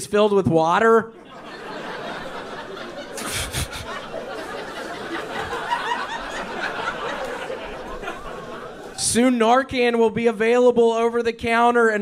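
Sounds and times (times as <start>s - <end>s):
audience laughing: 1.2s - 9.0s.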